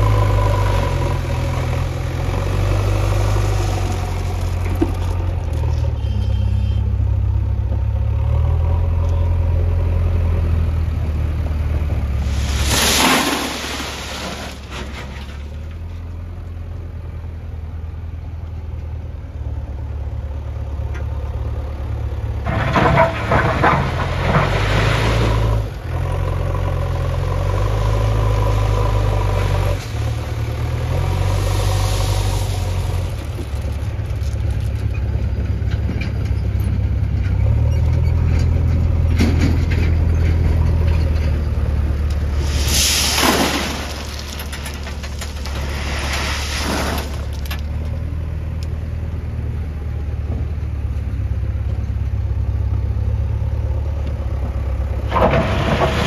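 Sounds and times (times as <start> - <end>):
diesel engine running under load: 0.0 - 56.0
rattling scraping burst: 12.2 - 15.5, 42.3 - 47.6.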